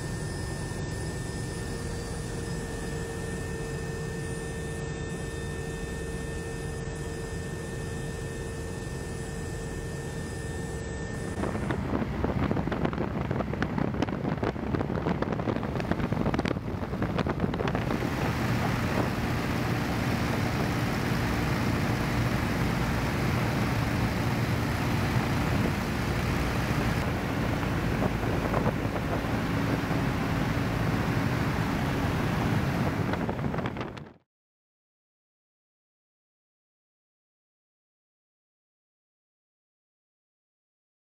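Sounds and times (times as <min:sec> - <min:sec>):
aircraft engine drone: 0:00.0 - 0:34.2
wind on microphone: 0:11.1 - 0:34.2.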